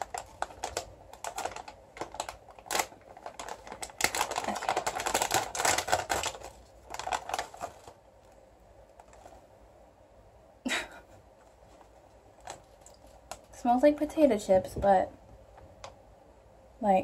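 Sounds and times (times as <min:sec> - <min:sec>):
chip bag crinkling and tearing: 0:00.0 - 0:09.4, 0:11.6 - 0:13.6.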